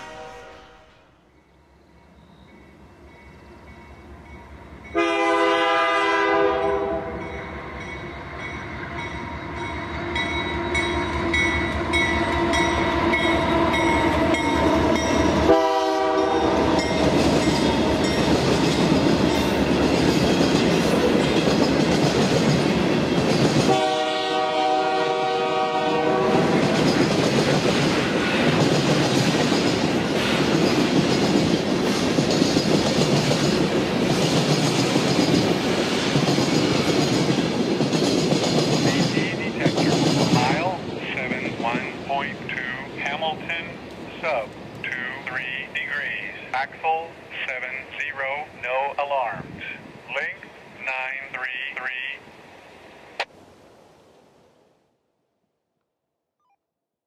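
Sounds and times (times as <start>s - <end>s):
locomotive air horn blasts: 0.0s - 1.1s, 4.9s - 7.2s, 15.4s - 16.6s, 23.7s - 26.6s
train wheels clattering over rails: 16.5s - 23.8s, 26.4s - 41.8s.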